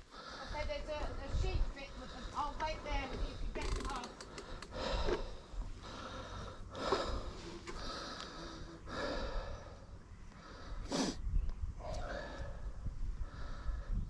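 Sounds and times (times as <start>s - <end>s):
person breathing heavily: 0.0s - 0.7s, 4.3s - 14.0s.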